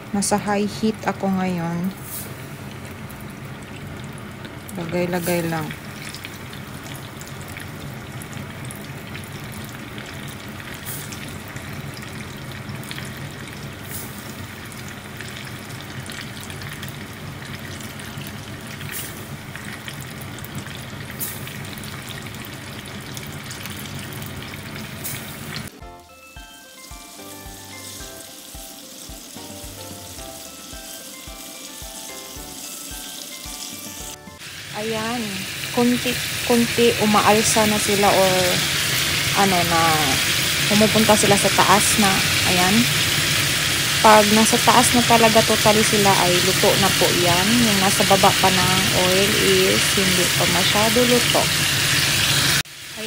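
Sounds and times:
oil sizzling while frying: 0:00.0 - 0:53.0
background music with beat: 0:25.7 - 0:34.4.

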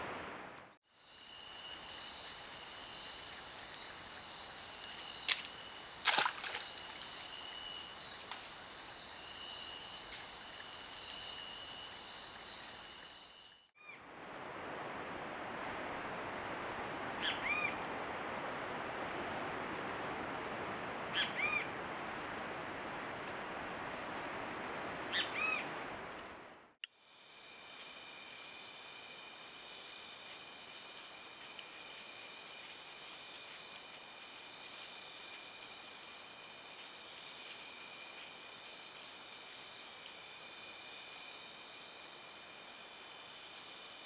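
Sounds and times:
background hiss: 0:00.0 - 0:44.0
night insects trilling: 0:00.9 - 0:13.7, 0:27.0 - 0:44.0.

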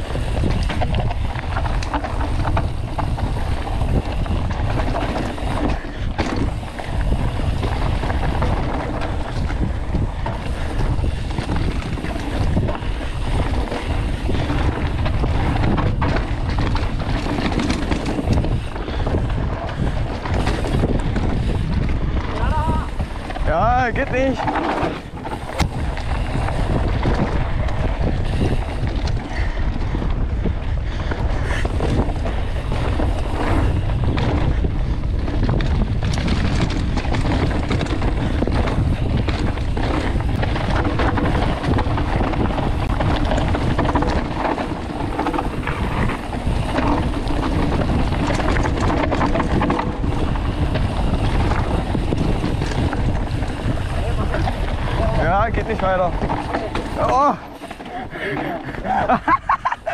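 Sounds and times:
bike knocking and rattling: 0:00.0 - 0:59.9
bike tyres on dirt: 0:00.0 - 0:59.9
wind rushing over microphone: 0:00.0 - 0:59.9.

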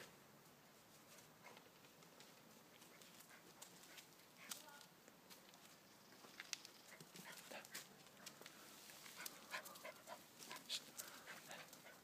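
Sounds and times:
small dog panting: 0:06.9 - 0:07.9, 0:09.0 - 0:12.0.

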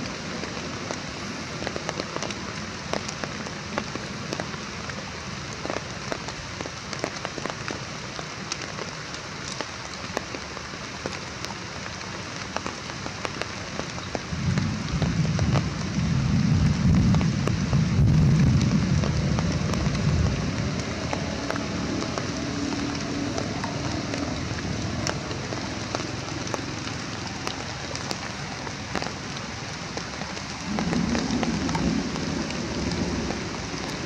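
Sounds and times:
rain falling on leaves: 0:00.0 - 0:34.0
low rumble: 0:30.6 - 0:34.0.

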